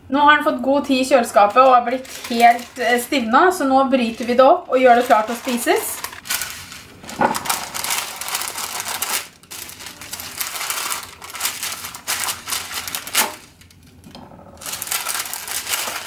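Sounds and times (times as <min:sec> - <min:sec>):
baking paper crinkling: 0:00.8 - 0:16.0
chocolate cracking: 0:04.2 - 0:16.0.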